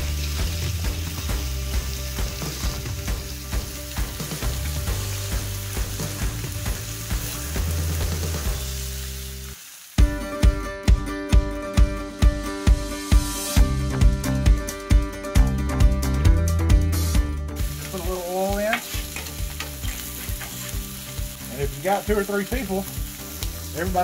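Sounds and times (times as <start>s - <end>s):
music with a strong beat: 0.0s - 8.7s, 10.0s - 18.0s
meat sizzling on a griddle: 0.0s - 11.0s, 12.3s - 13.7s, 17.0s - 24.0s.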